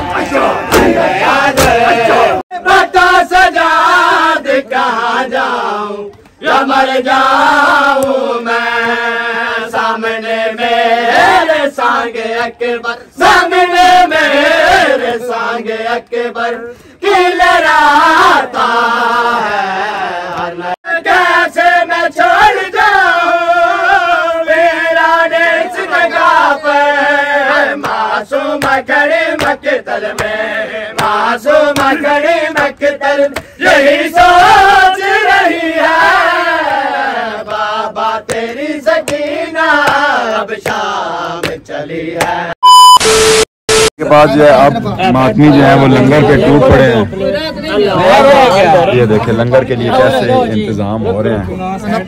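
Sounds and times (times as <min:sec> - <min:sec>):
men chanting along: 0:00.0 - 0:42.6, 0:45.1 - 0:50.7
hands slapping chests: 0:28.6 - 0:30.4, 0:31.0 - 0:32.0, 0:38.2 - 0:39.2, 0:39.8 - 0:41.6, 0:42.2 - 0:42.4.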